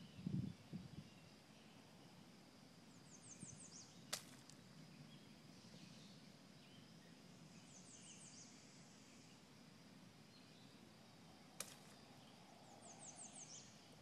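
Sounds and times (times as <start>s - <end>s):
small bird chirping: 11.6s - 14.0s.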